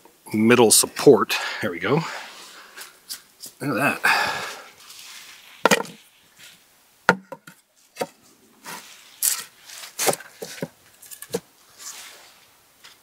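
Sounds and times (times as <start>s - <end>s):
wood scraping: 2.3s - 13.0s
wood knocking on wood: 5.6s - 6.0s, 7.1s - 8.2s.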